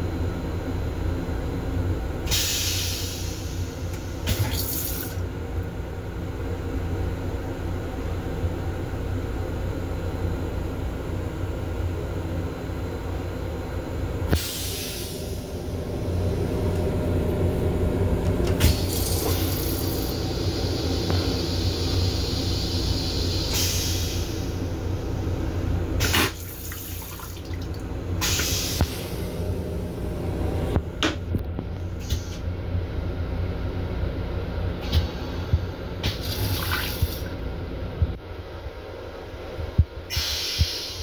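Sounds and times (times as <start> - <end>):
low hum of train: 0.0 - 41.0
toilet flushing: 2.3 - 5.2, 18.5 - 24.6, 26.0 - 29.2, 36.0 - 37.4.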